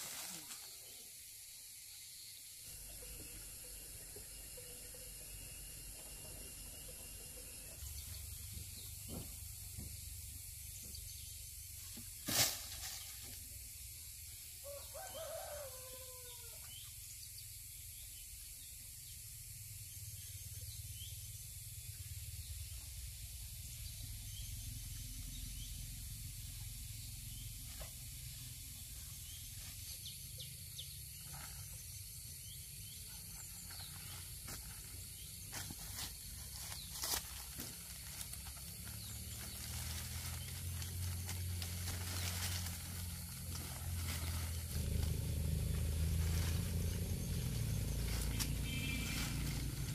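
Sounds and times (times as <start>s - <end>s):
steady high hiss: 0.0s - 16.0s
low hum: 35.7s - 49.9s.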